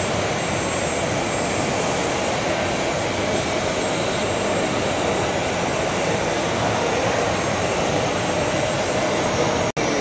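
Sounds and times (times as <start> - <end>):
crowded hall din: 0.0 - 10.0.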